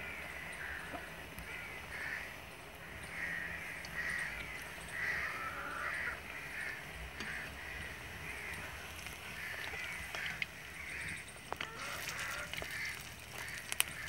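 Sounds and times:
birds cawing: 0.0s - 14.0s
food deep-frying in hot oil: 6.5s - 14.0s.

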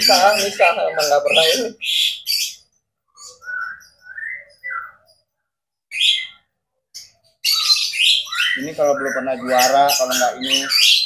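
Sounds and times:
bird whistled notes: 3.2s - 5.0s.

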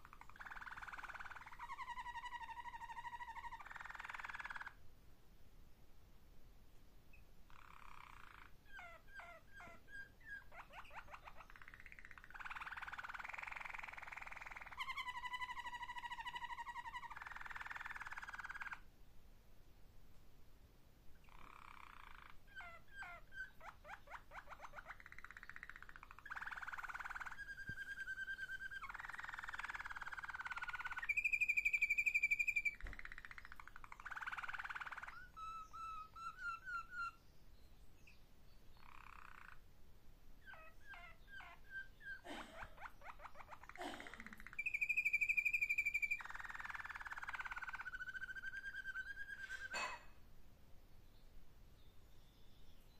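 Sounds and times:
canary singing: 0.0s - 4.8s, 7.1s - 18.8s, 21.2s - 39.7s, 40.4s - 50.0s.

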